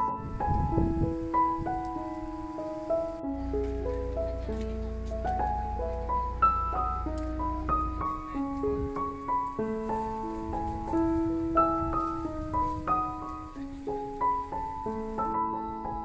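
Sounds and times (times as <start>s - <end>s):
low rumble: 0.0s - 16.0s
piano music: 0.0s - 16.0s.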